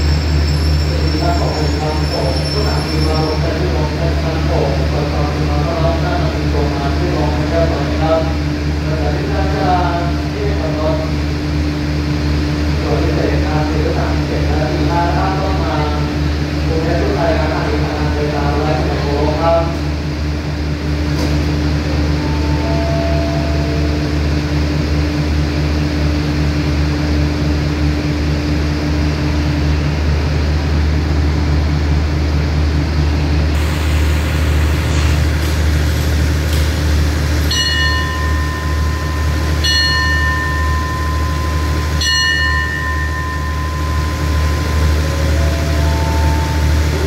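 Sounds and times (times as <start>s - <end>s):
diesel train engines idling: 0.0s - 47.0s
bell-like rings: 37.4s - 46.9s.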